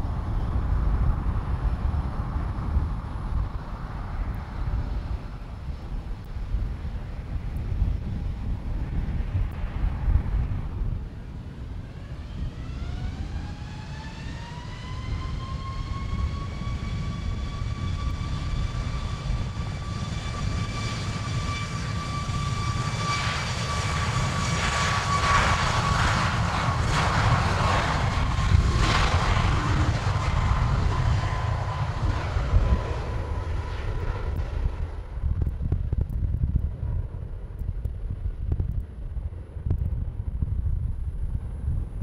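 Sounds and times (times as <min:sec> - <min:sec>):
low rumble: 0:00.0 - 0:42.0
jet engines whining: 0:08.7 - 0:37.5.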